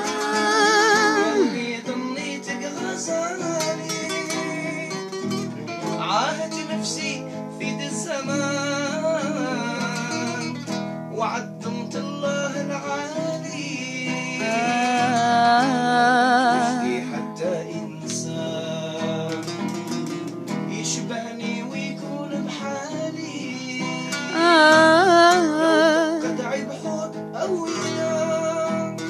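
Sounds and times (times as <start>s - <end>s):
person singing with vibrato: 0.0s - 5.0s, 11.2s - 19.4s, 20.7s - 29.0s
classical guitar: 0.0s - 29.0s.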